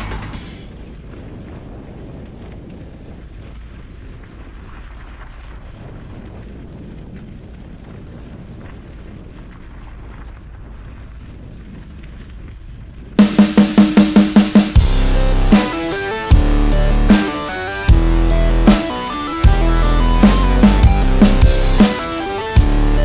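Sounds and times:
bike tyres on dirt: 0.6s - 13.2s
wind buffeting microphone: 0.6s - 13.2s.

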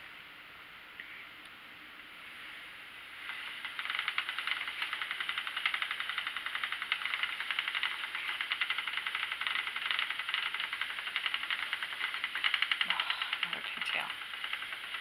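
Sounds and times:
spinning wheel ticking: 3.2s - 15.0s.

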